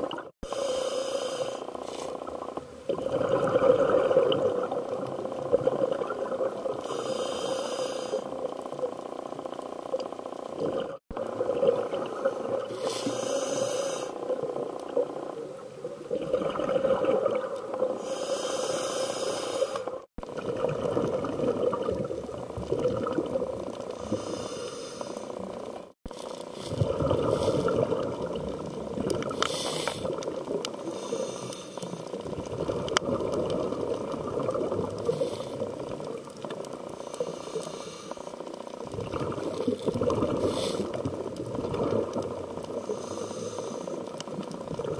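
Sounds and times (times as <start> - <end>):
regulator inhalation hiss: 0.4 - 2.1, 6.8 - 8.3, 12.7 - 14.2, 18.0 - 20.0, 24.0 - 25.5, 29.4 - 30.2, 30.8 - 32.1, 35.1 - 35.6, 37.0 - 38.4, 40.4 - 41.0, 42.8 - 44.0
rumbling bubbles: 1.7 - 6.9, 8.3 - 12.8, 14.1 - 18.0, 20.0 - 24.4, 25.2 - 31.1, 32.0 - 37.1, 38.3 - 43.0, 44.0 - 44.9.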